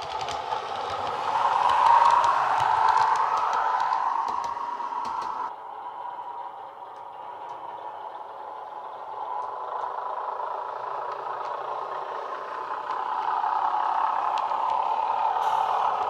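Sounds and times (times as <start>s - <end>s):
faint clicks: 0.0s - 5.5s
diesel railcar engine through speaker: 0.0s - 16.0s.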